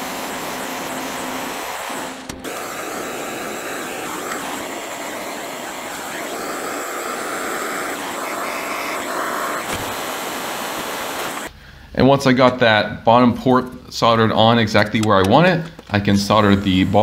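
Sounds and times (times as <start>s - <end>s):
gas torch hissing roar: 0.0s - 11.5s.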